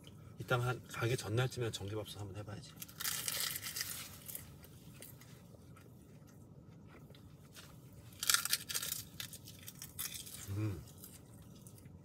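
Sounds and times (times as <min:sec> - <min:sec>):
chewing crisp seaweed and rice: 0:02.7 - 0:12.0.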